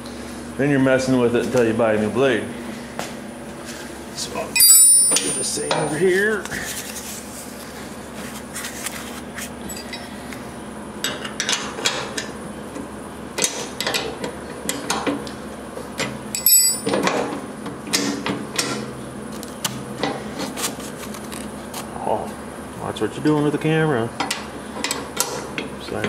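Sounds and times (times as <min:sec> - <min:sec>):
metal clinks and knocks: 0:04.6 - 0:05.8, 0:09.7 - 0:10.1, 0:16.4 - 0:17.0.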